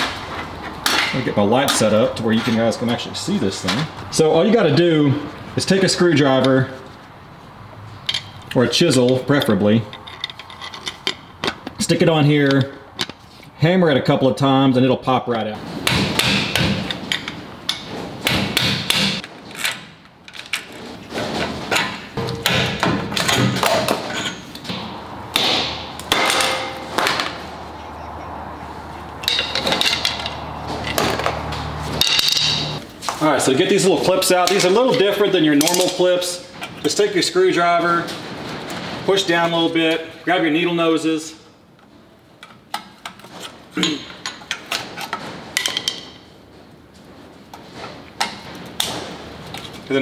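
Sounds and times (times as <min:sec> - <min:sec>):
hammer clanking on metal: 0:15.8 - 0:19.2, 0:21.7 - 0:27.4, 0:29.2 - 0:31.4, 0:32.0 - 0:32.8.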